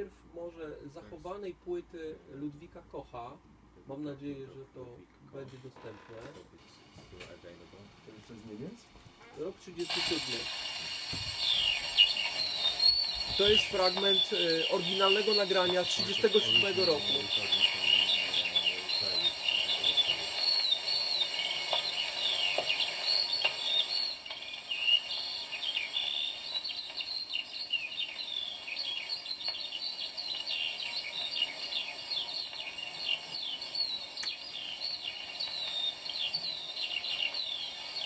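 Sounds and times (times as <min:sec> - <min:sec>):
birds chirping in chorus: 0:10.0 - 0:38.0.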